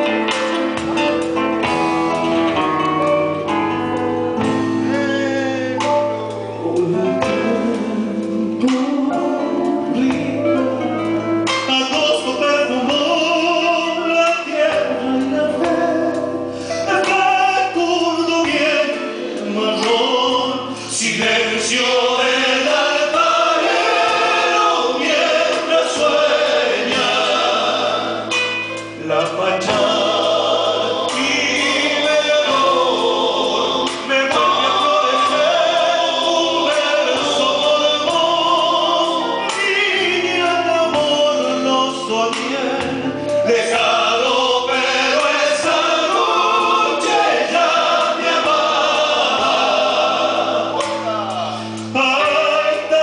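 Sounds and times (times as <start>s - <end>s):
sustained musical backing: 0.0s - 53.0s
man singing lead: 4.5s - 23.5s, 33.8s - 47.7s, 50.5s - 53.0s
voices singing in harmony: 11.7s - 53.0s.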